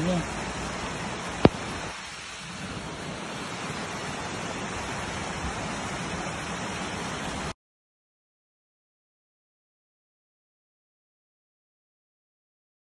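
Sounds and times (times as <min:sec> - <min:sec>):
floodwater rushing down gully: 0:00.0 - 0:07.6.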